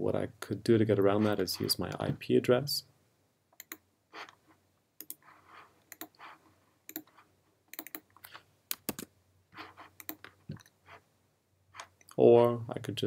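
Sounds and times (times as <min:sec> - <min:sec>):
computer keyboard typing: 0:03.6 - 0:03.8, 0:05.0 - 0:05.2, 0:05.9 - 0:06.2, 0:06.9 - 0:09.1, 0:10.0 - 0:10.7.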